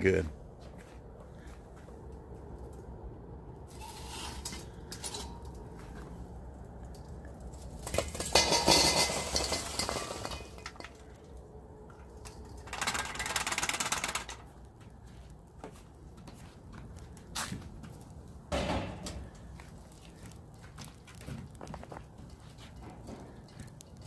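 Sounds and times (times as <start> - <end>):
charcoal clattering against steel: 3.7 - 5.6, 7.4 - 11.3, 12.1 - 14.5.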